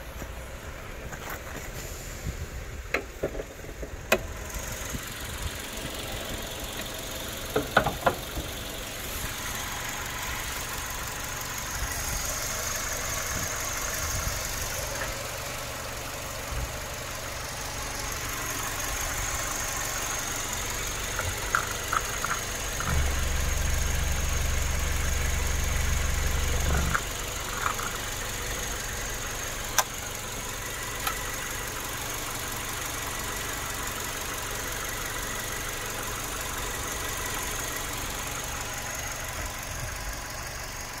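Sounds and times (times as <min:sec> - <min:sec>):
car engine idling: 0:00.0 - 0:41.0
deep low rumble: 0:16.4 - 0:29.2.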